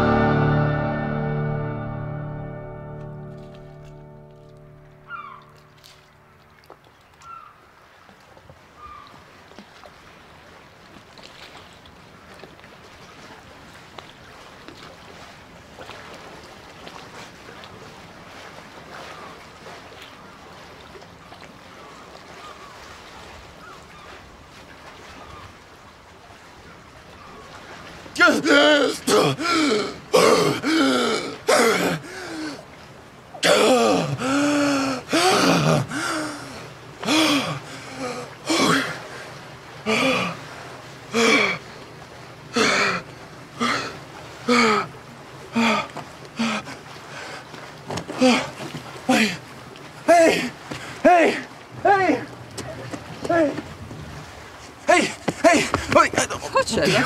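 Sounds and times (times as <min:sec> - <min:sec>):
water lapping against stone pier: 0:00.0 - 0:57.0
wind: 0:00.0 - 0:57.0
man gasping: 0:28.8 - 0:32.6, 0:33.4 - 0:39.0, 0:41.2 - 0:41.6.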